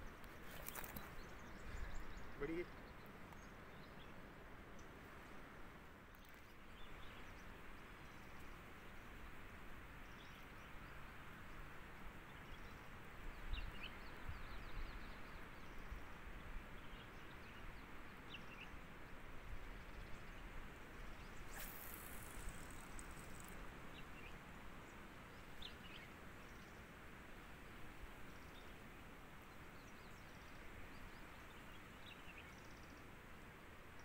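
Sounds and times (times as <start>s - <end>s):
background hiss: 18.0s - 34.0s.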